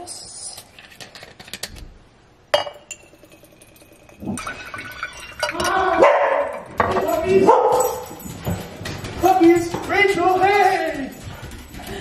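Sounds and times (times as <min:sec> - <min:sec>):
glass clink: 0:02.5 - 0:08.6
liquid pouring into glass: 0:02.6 - 0:05.7.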